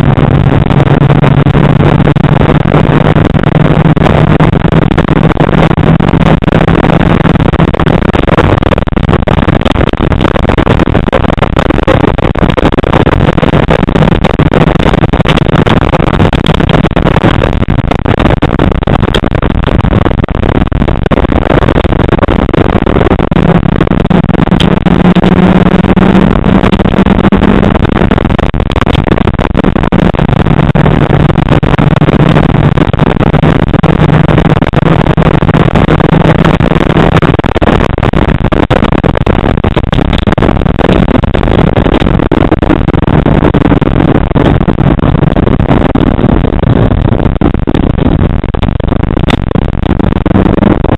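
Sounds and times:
rally car engine: 0.0 - 8.8, 23.4 - 27.8
road and tyre noise: 0.0 - 50.9.

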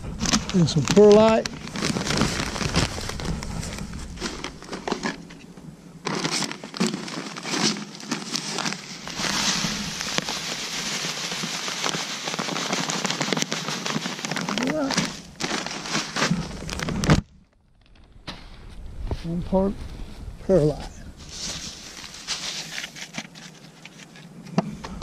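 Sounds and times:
plastic bag crinkling: 0.0 - 5.4, 6.0 - 18.1, 21.2 - 24.3
granules pouring into cup: 6.1 - 17.1.

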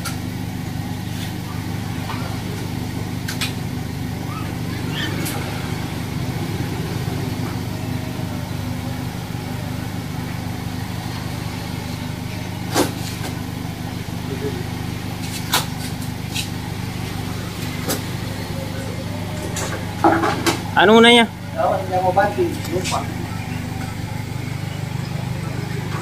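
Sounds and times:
engine running with low hum: 0.0 - 26.0.

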